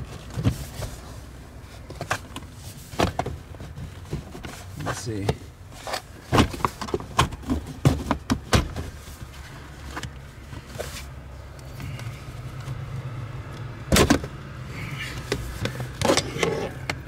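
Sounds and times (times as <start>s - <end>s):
loud scrape: 16.0s - 16.8s.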